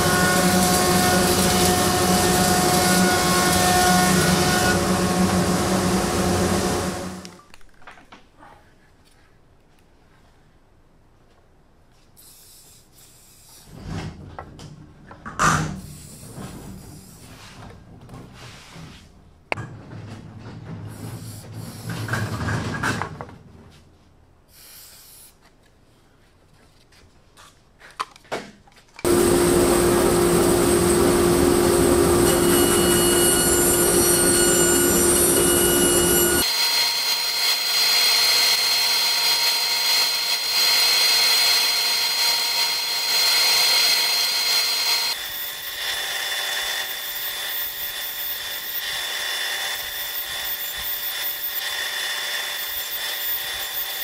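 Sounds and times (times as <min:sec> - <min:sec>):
bandsaw cutting wood: 0:00.0 - 0:07.3, 0:29.1 - 0:54.0
spray can hissing: 0:12.2 - 0:13.7, 0:24.5 - 0:25.4.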